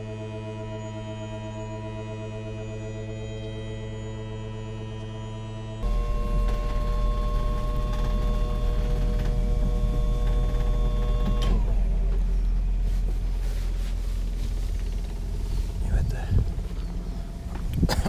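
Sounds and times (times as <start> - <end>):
engine whine sliding down: 5.8 - 17.9
boat engine rumble: 5.8 - 18.0.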